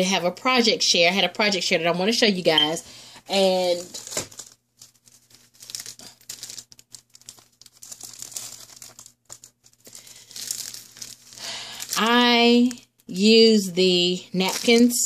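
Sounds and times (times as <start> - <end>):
paper napkin packet crinkling: 3.4 - 13.0, 14.3 - 15.0.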